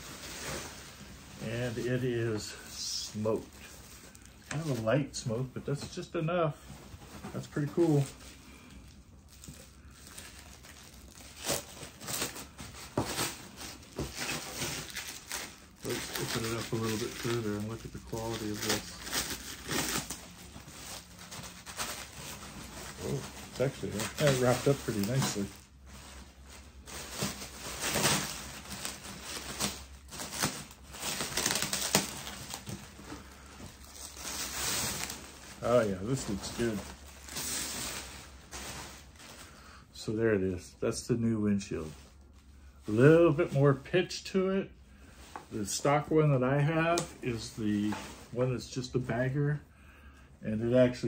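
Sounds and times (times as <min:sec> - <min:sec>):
packaging crinkling and rustling: 0:00.0 - 0:06.1, 0:06.9 - 0:39.7.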